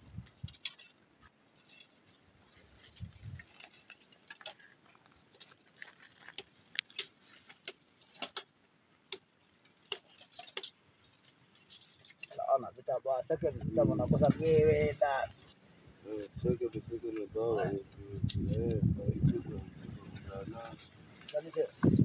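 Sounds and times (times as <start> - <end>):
faint irregular clicks: 0.2 - 12.5.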